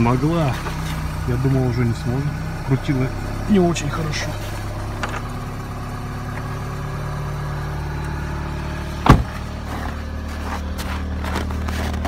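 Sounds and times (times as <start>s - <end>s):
car engine idling: 0.0s - 12.0s
loud thump: 9.0s - 9.4s.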